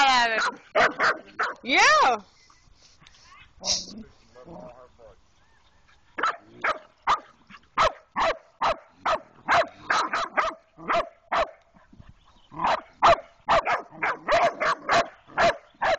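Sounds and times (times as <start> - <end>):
puppies barking rapidly: 0.0 - 1.9, 6.2 - 11.6, 12.6 - 15.9.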